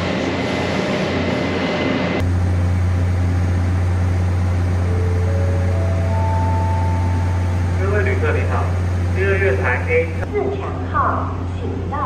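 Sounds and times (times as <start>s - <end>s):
train rumbling: 0.0s - 12.0s
ascending chime: 4.9s - 7.5s.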